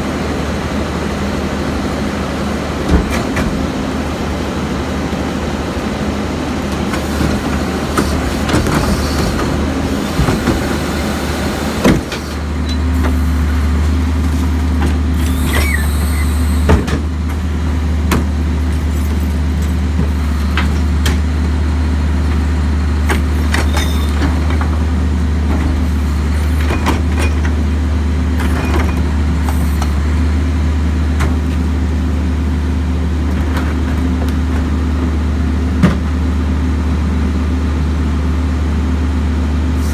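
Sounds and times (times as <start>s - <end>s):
diesel truck engine running: 0.0s - 39.9s
brief squeal: 15.2s - 16.6s, 23.7s - 24.2s.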